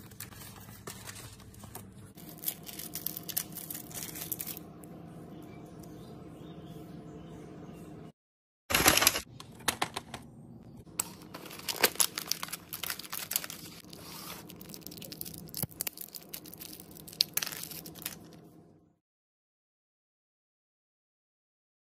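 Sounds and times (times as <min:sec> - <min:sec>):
paper and plastic wrapping tearing: 0:02.2 - 0:04.6, 0:08.7 - 0:09.3, 0:11.0 - 0:18.4.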